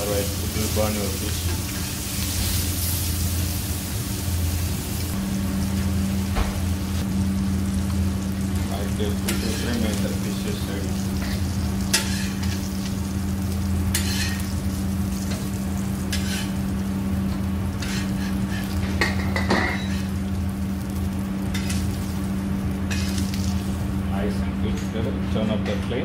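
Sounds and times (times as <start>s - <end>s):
fish sizzling in oil: 0.0s - 24.1s
steady low hum: 0.0s - 26.0s
metal spatula scraping a pan: 9.3s - 9.8s, 11.2s - 12.6s, 13.9s - 14.4s, 16.1s - 16.6s, 17.8s - 20.1s.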